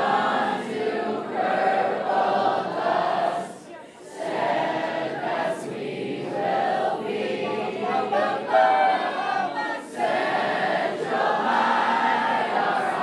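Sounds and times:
teenagers singing together: 0:00.0 - 0:13.0.

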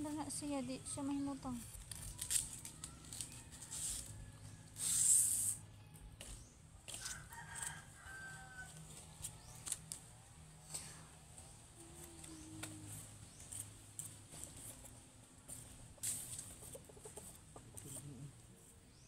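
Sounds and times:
knife stripping leaf: 0:01.7 - 0:05.6
rasping tear of leaf: 0:01.7 - 0:05.6
distant rooster crowing: 0:02.9 - 0:05.1, 0:06.9 - 0:09.0.

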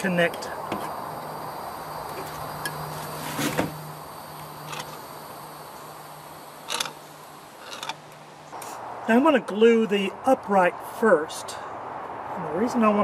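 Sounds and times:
knocks and scrapes of handling: 0:02.1 - 0:03.8.

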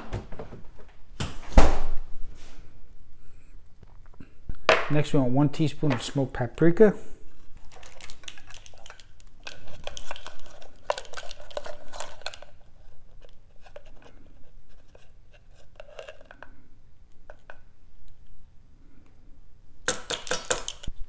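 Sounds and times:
plastic measuring spoons clicking: 0:19.9 - 0:20.9.

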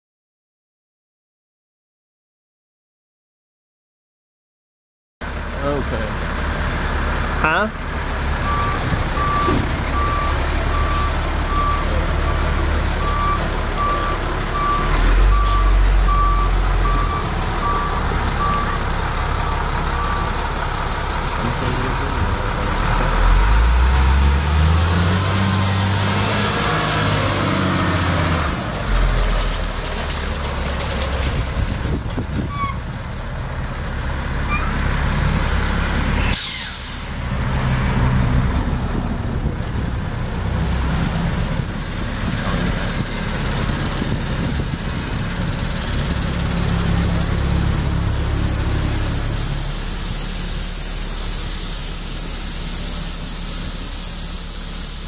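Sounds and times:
truck diesel engine running: 0:05.2 - 0:55.0
reverse alarm beeping: 0:08.4 - 0:12.4
air brake hiss: 0:36.2 - 0:37.2, 0:47.8 - 0:55.0.

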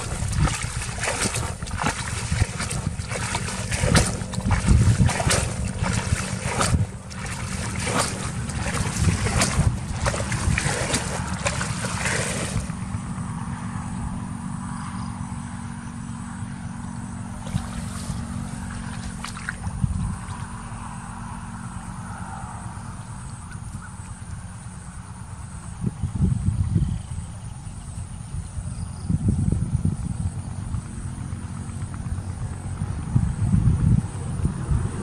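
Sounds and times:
water dribbling: 0:00.0 - 0:12.8, 0:17.3 - 0:20.6
water splashing from basin: 0:00.0 - 0:12.8, 0:17.3 - 0:20.6.

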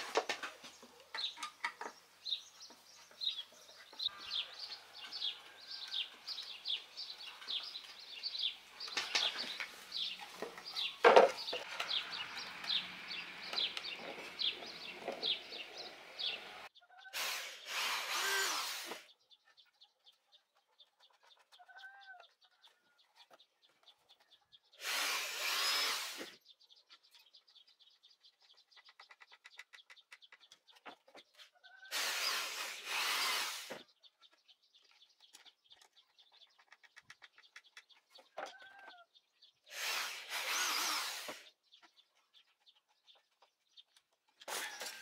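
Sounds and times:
cordless drill into wood: 0:17.2 - 0:19.0, 0:24.8 - 0:26.4, 0:31.9 - 0:33.8, 0:39.7 - 0:41.4, 0:44.5 - 0:45.0.

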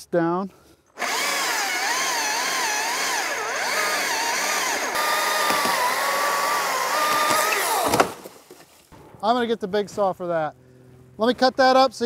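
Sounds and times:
battery chainsaw cutting wood: 0:01.0 - 0:08.3.

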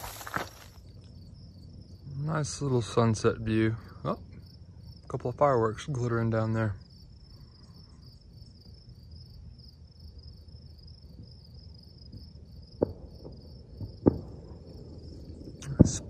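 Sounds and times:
insects chirring: 0:00.0 - 0:16.0
distant fireworks booming: 0:12.1 - 0:16.0.

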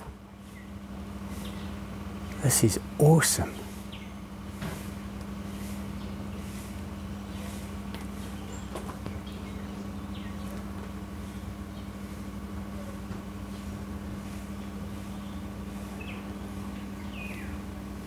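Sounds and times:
low mechanical hum: 0:00.0 - 0:18.0
bird chirps: 0:17.0 - 0:17.6.

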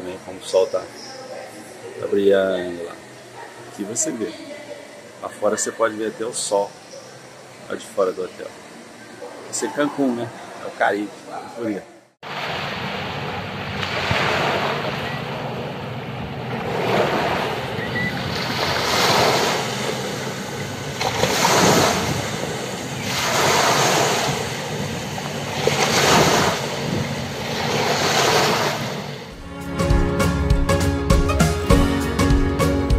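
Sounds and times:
waves washing up a beach: 0:12.2 - 0:29.4
wind on microphone: 0:13.9 - 0:19.8, 0:20.5 - 0:29.0.

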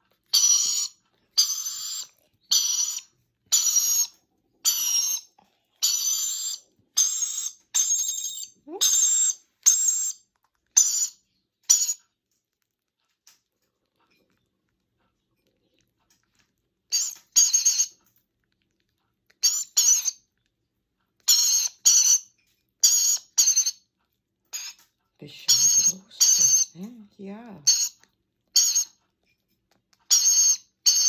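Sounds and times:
parrot chick squawking: 0:00.3 - 0:10.2, 0:10.8 - 0:12.0, 0:16.9 - 0:18.0, 0:19.4 - 0:20.2, 0:21.2 - 0:23.8, 0:24.5 - 0:24.8, 0:25.5 - 0:26.8, 0:27.6 - 0:29.0, 0:30.1 - 0:31.0.

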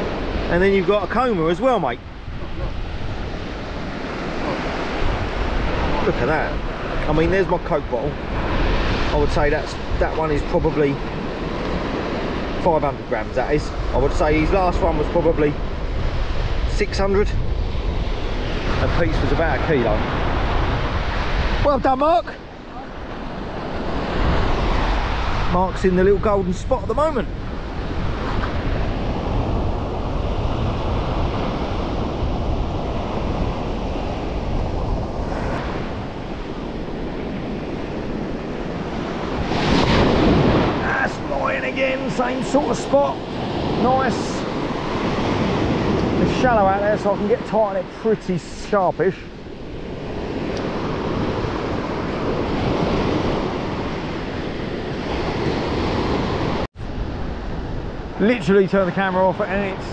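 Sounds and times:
wind rumbling on microphone: 0:00.0 - 0:59.9
surf washing up pebble beach: 0:22.9 - 0:59.9.

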